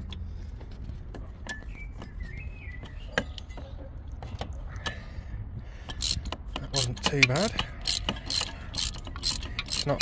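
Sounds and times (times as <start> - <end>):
socket wrench clicks and knocks: 5.8 - 10.0.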